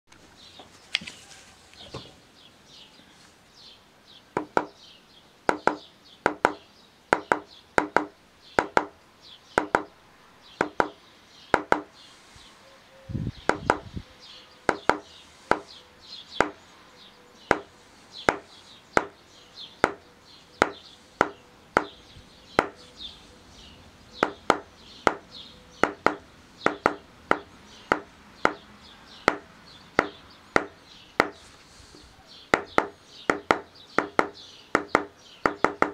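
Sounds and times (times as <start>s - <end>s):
dull low thump: 13.4s - 13.9s
mallet striking stamping tool: 22.6s - 22.8s.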